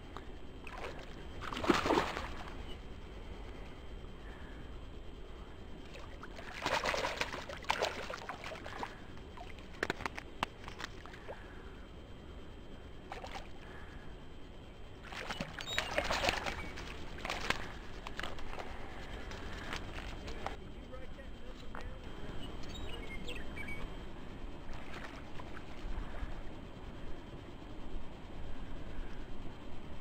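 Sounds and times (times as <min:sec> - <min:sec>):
fish splashing at water surface: 0:00.7 - 0:02.5, 0:06.4 - 0:11.3, 0:15.0 - 0:18.7.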